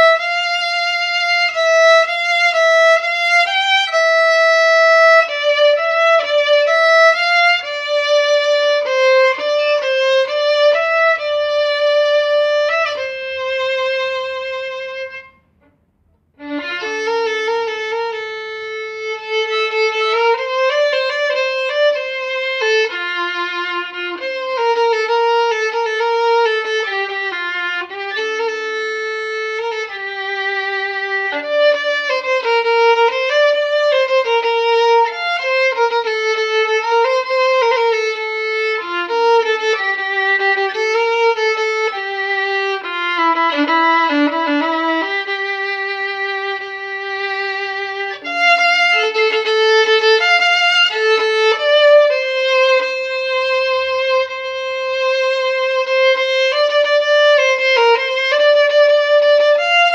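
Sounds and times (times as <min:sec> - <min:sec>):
solo violin melody: 0:00.0 - 0:59.9.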